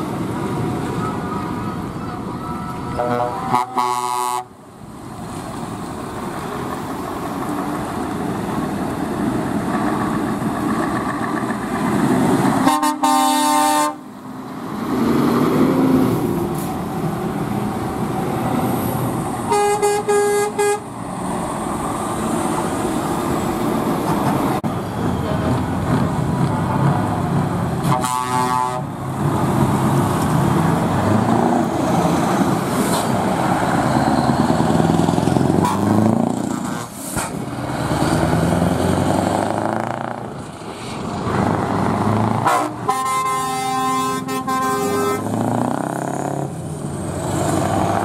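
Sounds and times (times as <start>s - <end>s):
trucks revving pulling away: 0.0s - 48.0s
truck air horn blast: 2.9s - 4.6s, 12.6s - 14.1s, 19.5s - 20.9s, 27.8s - 28.9s, 35.6s - 36.8s, 42.4s - 45.4s.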